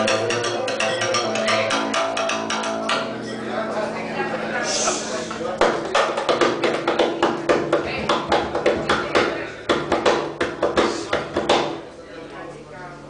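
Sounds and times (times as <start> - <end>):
taps and slaps on double bass: 5.6 - 11.8.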